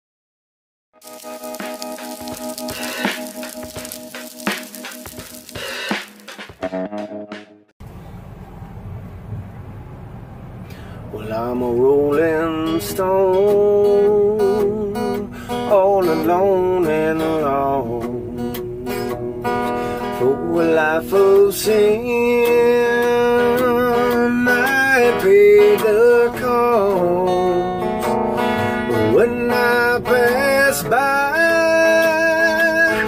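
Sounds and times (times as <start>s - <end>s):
electric guitar playing: 1.0s - 7.7s.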